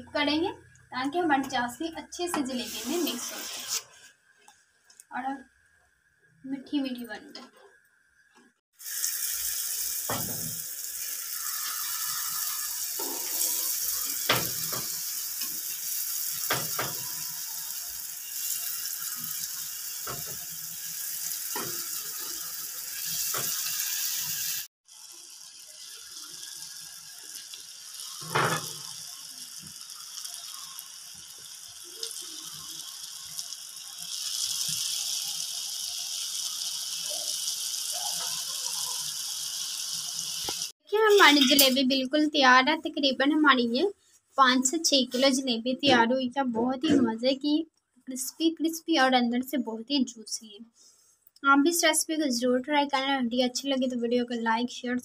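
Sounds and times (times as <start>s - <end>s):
batter sizzling in hot oil: 1.5s - 4.0s, 8.7s - 41.7s.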